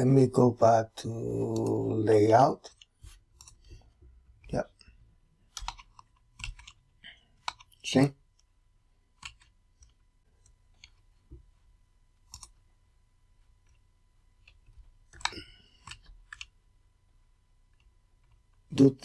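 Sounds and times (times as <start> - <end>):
mouse and keyboard clicks: 2.7 - 4.8, 5.5 - 6.8, 7.4 - 7.8, 9.1 - 11.0, 12.2 - 12.6, 14.4 - 16.6.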